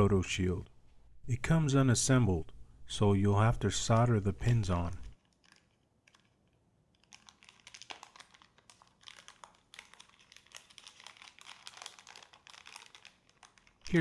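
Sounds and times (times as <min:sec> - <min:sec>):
plastic bag crinkling: 0:04.4 - 0:14.0.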